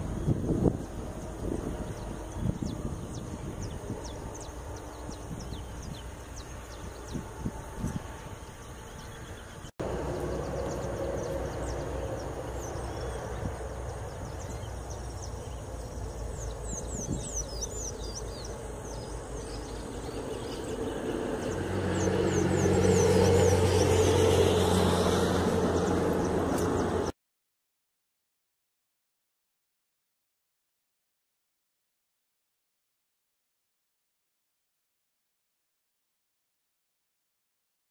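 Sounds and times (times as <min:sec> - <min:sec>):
low outdoor rumble: 0:00.0 - 0:27.1
motor engine droning: 0:00.0 - 0:27.1.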